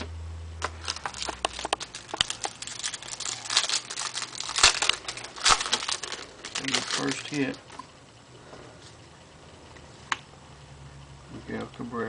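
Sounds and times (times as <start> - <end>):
foil wrapper crinkling and tearing: 0.6 - 7.6.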